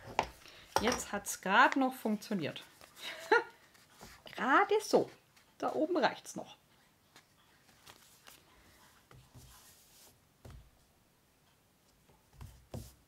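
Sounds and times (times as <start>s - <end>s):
paper and fabric rustling: 2.5s - 5.9s, 7.1s - 10.8s.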